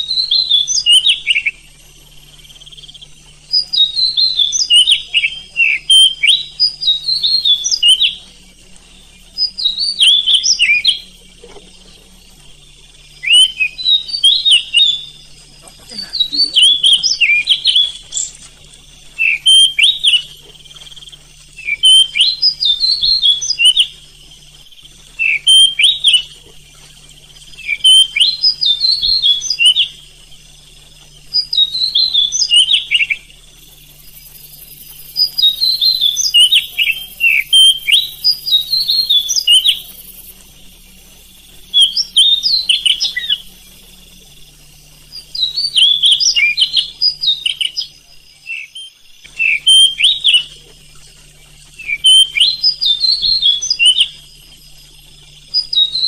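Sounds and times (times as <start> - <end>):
bird singing whistled phrases: 0.0 - 1.7, 2.7 - 8.3, 9.3 - 11.2, 13.2 - 15.3, 15.9 - 18.4, 19.1 - 24.0, 25.1 - 26.4, 27.5 - 30.0, 31.2 - 40.4, 41.7 - 44.1, 45.1 - 50.7, 51.6 - 54.3, 55.2 - 56.0.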